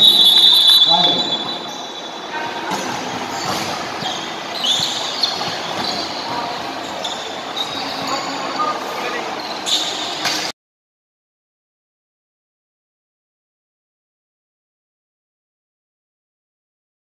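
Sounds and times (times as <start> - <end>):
echoing crowd chatter: 0.0 - 10.5
sneaker squeaks on court: 0.0 - 10.5.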